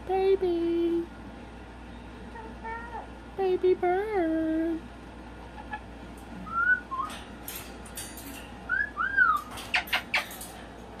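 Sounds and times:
claws clicking on cage bars: 0:05.6 - 0:11.0
cockatoo whistling: 0:06.4 - 0:07.2, 0:08.7 - 0:09.5.

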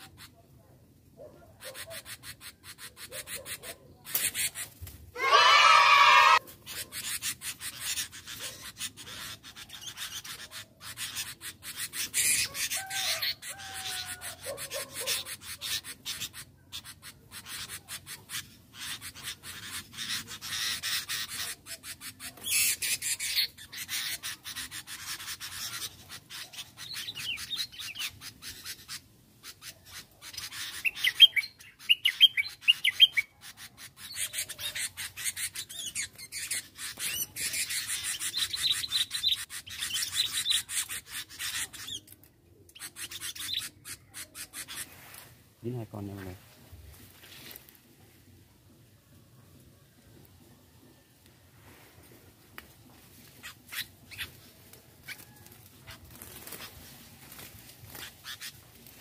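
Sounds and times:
bulbuls calling: 0:01.6 - 0:42.1
crackling rustle: 0:44.7 - 0:48.4, 0:51.2 - 0:59.0.

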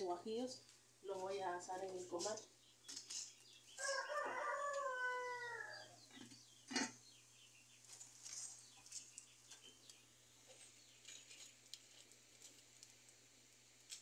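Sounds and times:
rooster crowing: 0:03.8 - 0:06.0.

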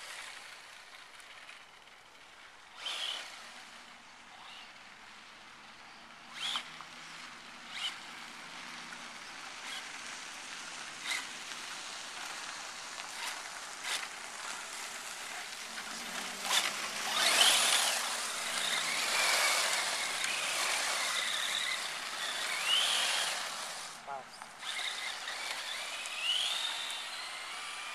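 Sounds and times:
electric motor whining: 0:13.1 - 0:27.9.

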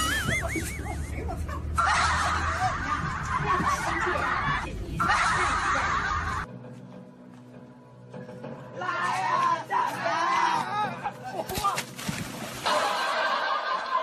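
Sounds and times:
shrill cackling laughter: 0:00.0 - 0:06.5.

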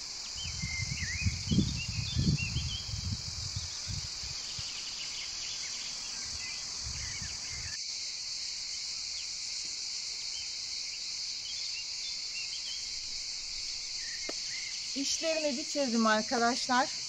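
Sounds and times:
insects chorus: 0:00.0 - 0:17.0.

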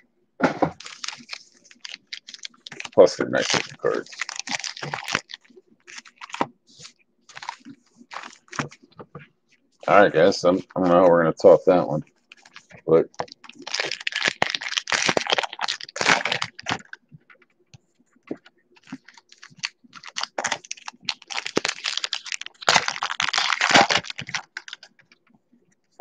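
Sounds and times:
cards clicking and rustling: 0:00.8 - 0:09.2
wrappers crinkling: 0:00.8 - 0:09.2, 0:12.1 - 0:17.4, 0:18.3 - 0:25.3.

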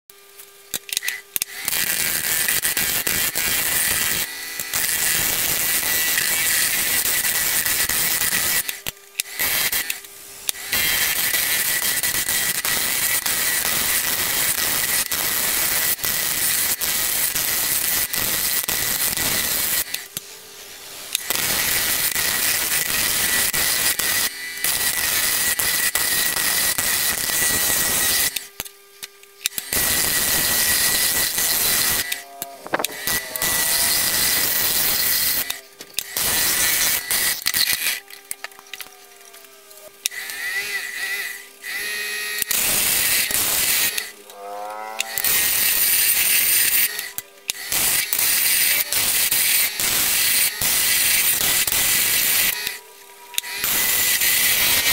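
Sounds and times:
lathe tool scraping wood: 0:29.6 - 0:35.6.

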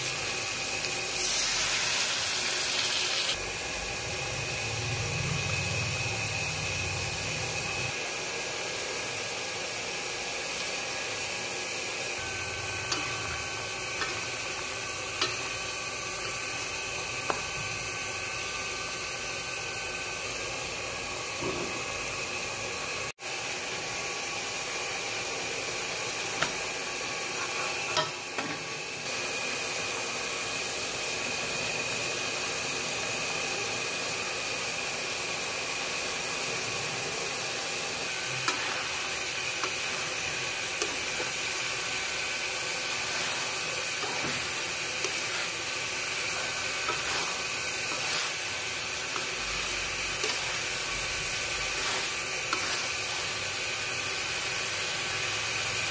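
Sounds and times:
sauce sizzling in a wok: 0:00.0 - 0:55.9
metal spatula scraping wok: 0:38.2 - 0:53.6.

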